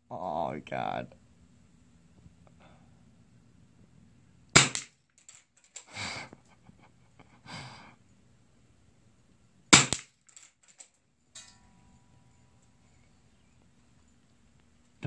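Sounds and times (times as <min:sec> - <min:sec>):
person breathing: 0:02.5 - 0:03.1, 0:05.8 - 0:06.4, 0:07.2 - 0:08.0
rifle shots: 0:04.6 - 0:04.9, 0:09.7 - 0:10.1.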